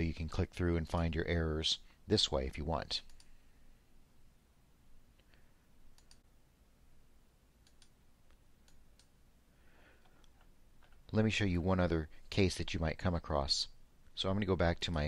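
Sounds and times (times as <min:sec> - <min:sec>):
computer mouse clicks: 0:03.0 - 0:03.3, 0:05.2 - 0:06.3, 0:07.6 - 0:09.2.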